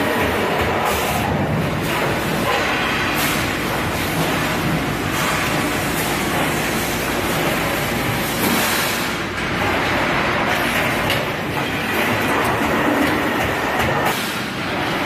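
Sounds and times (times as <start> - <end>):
factory machine rumbling: 0.0 - 15.0.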